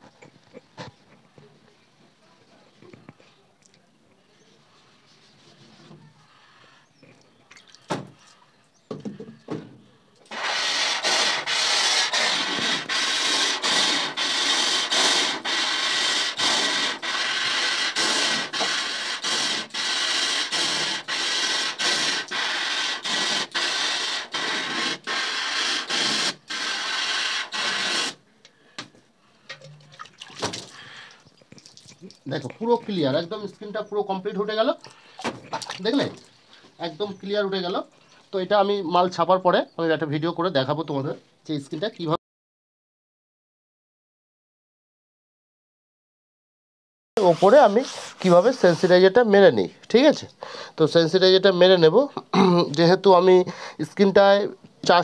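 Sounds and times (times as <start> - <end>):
hose water jet hissing on mesh: 10.3 - 28.2, 47.2 - 49.1.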